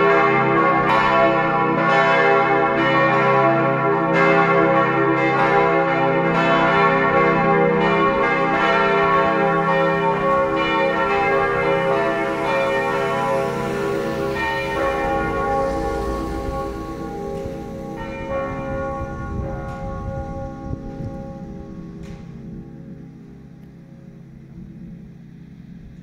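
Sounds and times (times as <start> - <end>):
church bells ringing: 0.0 - 24.8
low rumble: 7.2 - 26.0.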